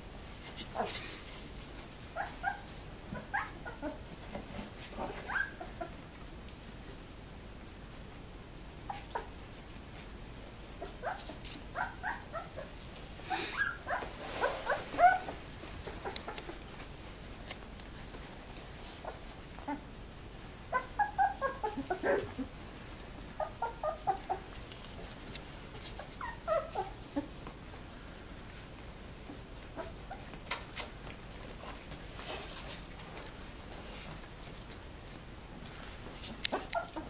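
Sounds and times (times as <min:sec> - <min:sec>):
puppies whimpering and squeaking: 0:02.1 - 0:04.0, 0:05.0 - 0:06.0, 0:10.8 - 0:12.7, 0:13.3 - 0:16.6, 0:20.7 - 0:22.5, 0:23.4 - 0:24.5, 0:25.9 - 0:27.3, 0:36.5 - 0:37.0.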